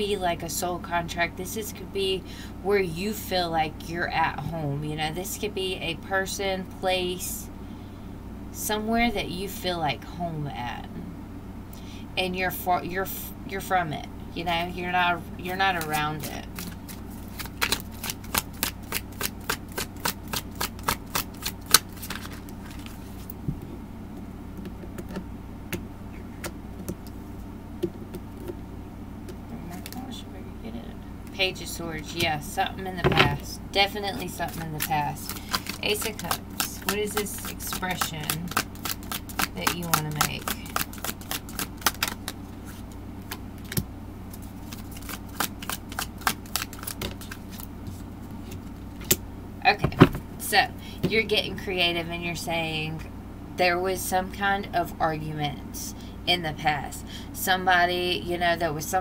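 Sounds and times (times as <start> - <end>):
low steady hum: 0.0 - 59.0
cards being shuffled: 15.5 - 23.4, 34.2 - 49.2.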